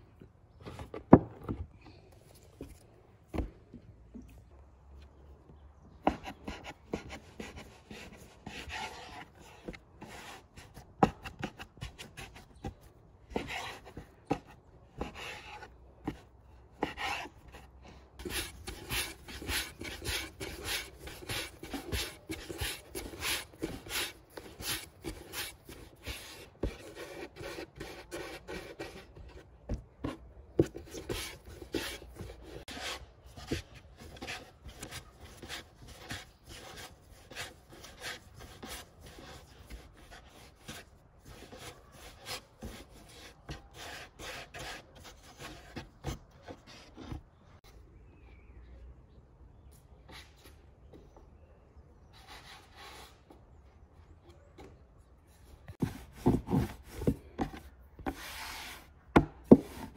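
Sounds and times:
hands rolling dough on board: 6.0 - 47.4, 55.7 - 59.9.

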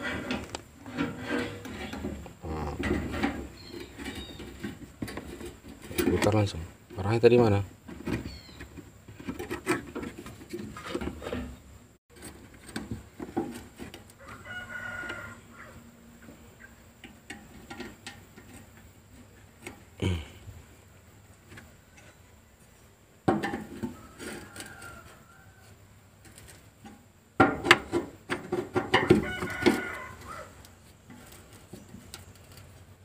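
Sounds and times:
rooster crowing: 14.1 - 15.9, 23.9 - 25.8, 28.9 - 30.6.

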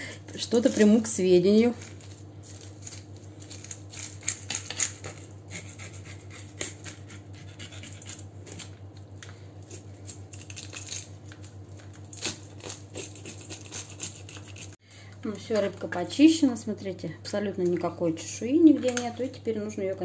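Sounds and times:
metal spoon scraping fish scales: 12.2 - 14.8.

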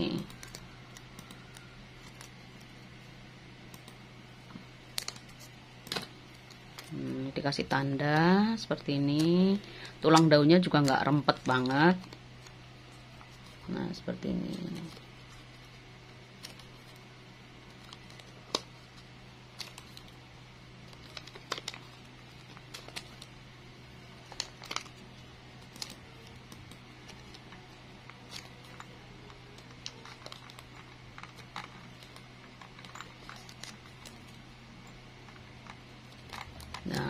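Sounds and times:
faint steady hum: 0.0 - 37.0
plastic bag crinkling: 24.1 - 34.5.

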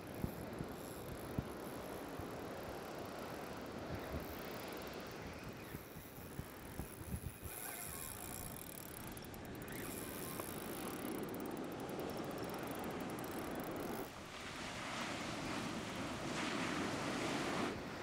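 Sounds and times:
fishing reel ticking: 0.0 - 14.1
surf washing in: 10.3 - 18.0.

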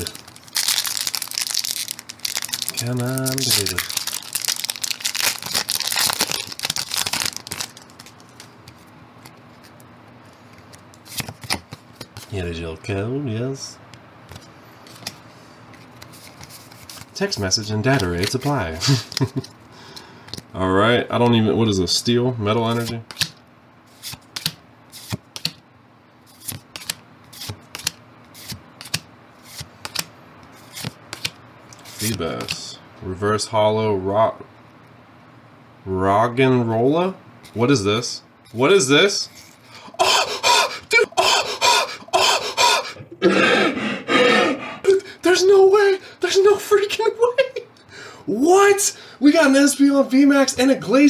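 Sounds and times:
foil wrapper crinkling and tearing: 0.0 - 8.5
trading cards flipping: 0.0 - 12.3, 14.3 - 17.1, 22.8 - 25.6, 26.3 - 32.6.

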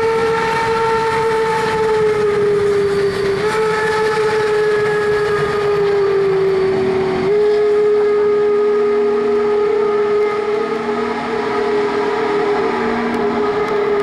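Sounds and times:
steam locomotive whistle: 0.0 - 14.0.

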